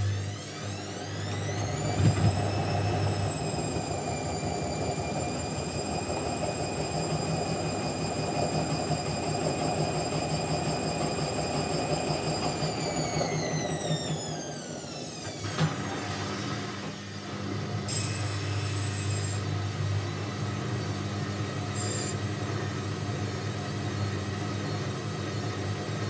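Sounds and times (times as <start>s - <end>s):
washing machine motor whine: 0.0s - 26.0s
washing machine knock: 1.8s - 2.6s.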